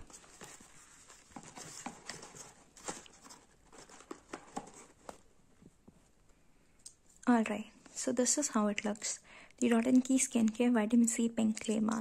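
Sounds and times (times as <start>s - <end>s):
paperboard box being handled: 0.0s - 5.3s.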